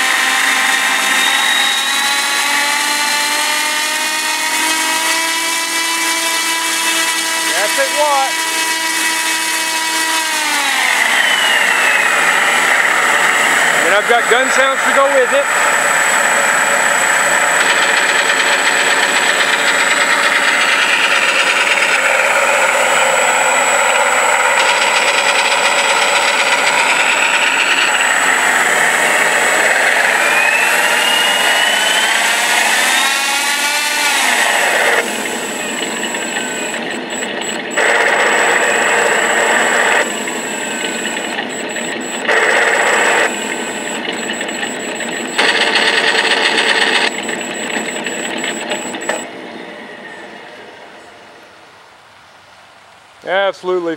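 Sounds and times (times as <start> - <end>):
simulated radial engine sound: 0.0 - 50.7
engine whine: 0.0 - 52.1
simulated machine-gun fire: 17.4 - 23.0, 37.5 - 39.8, 42.2 - 43.3, 45.0 - 49.0.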